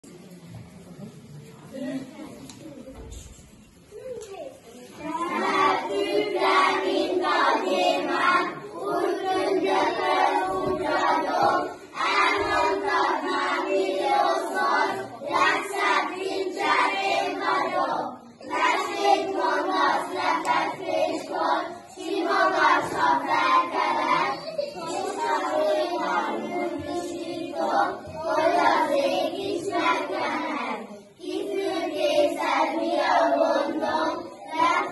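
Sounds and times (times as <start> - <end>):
children singing in unison: 5.0 - 34.9.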